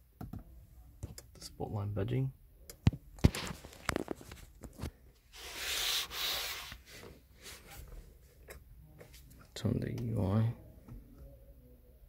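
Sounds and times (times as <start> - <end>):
hissing rub: 5.3 - 6.9
close rubbing noise: 5.3 - 7.9.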